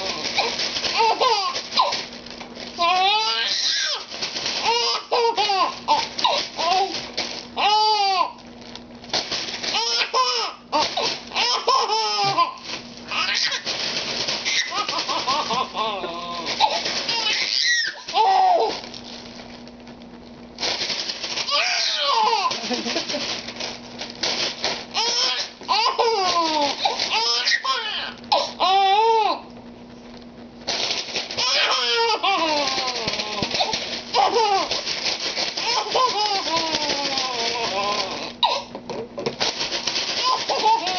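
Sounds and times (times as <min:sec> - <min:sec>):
plastic bag rustling: 0:00.0 - 0:40.9
baby laughing: 0:09.8 - 0:13.6, 0:14.5 - 0:18.8, 0:25.0 - 0:29.4, 0:31.4 - 0:34.8, 0:35.6 - 0:38.7, 0:40.2 - 0:40.9.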